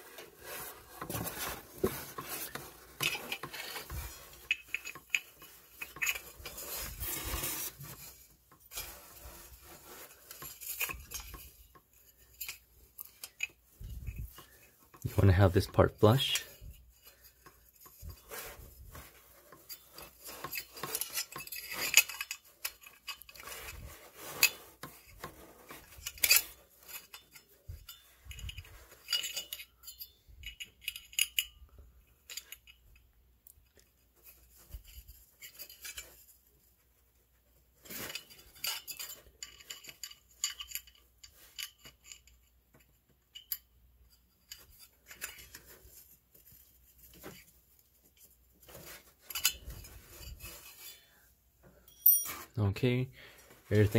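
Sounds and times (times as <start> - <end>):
allen key clicking and scraping: 2.5 - 7.7
light metal clinks: 51.8 - 52.5.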